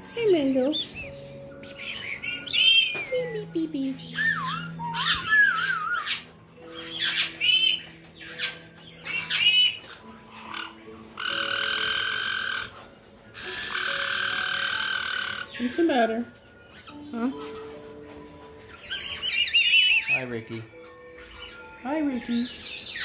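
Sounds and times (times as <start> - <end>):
parrot chirps and whistles: 0.7 - 3.2, 4.0 - 12.8, 18.8 - 20.2
parrot harsh screeches: 4.0 - 15.6, 18.7 - 20.3.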